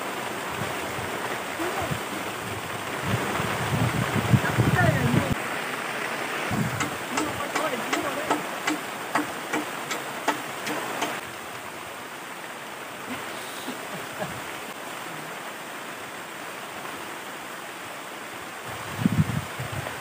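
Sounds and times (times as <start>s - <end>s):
wind gusts on microphone: 0.0s - 9.0s, 18.5s - 20.0s
steady rushing noise: 0.0s - 11.5s
sharp clicks: 6.8s - 11.2s.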